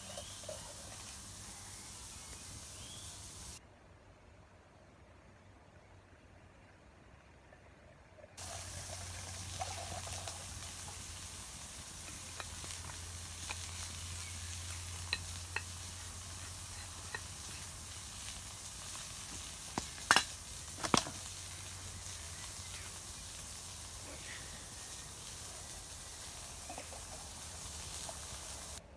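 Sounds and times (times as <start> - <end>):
food sizzling over campfire: 0.0 - 3.6, 8.4 - 28.8
fire crackling and popping: 8.4 - 28.8.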